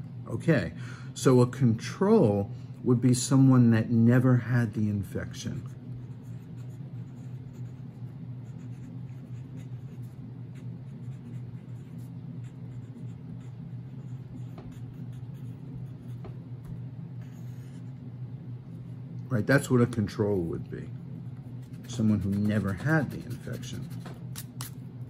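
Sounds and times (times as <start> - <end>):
steady low hum: 0.0 - 25.0
pen scratching on paper: 5.6 - 16.3, 17.2 - 18.0, 21.4 - 24.7.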